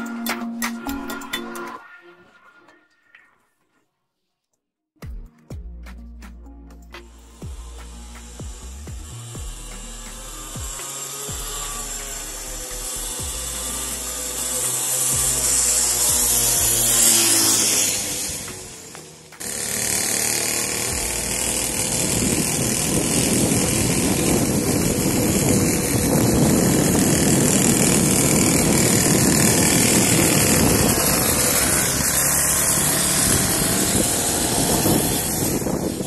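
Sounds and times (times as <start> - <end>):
small motorbike engine running: 7.2 - 36.0.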